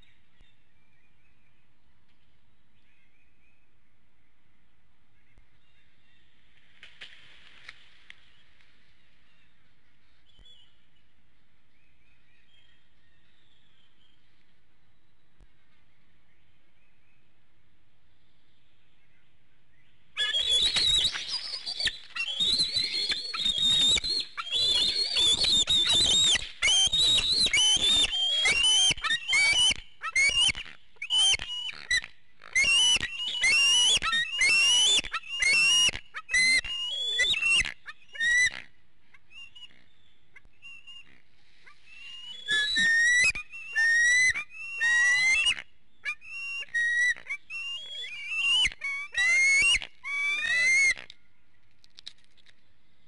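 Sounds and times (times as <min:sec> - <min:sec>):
eaglets whistling squeals: 0:20.2 - 0:38.6, 0:40.6 - 0:51.1.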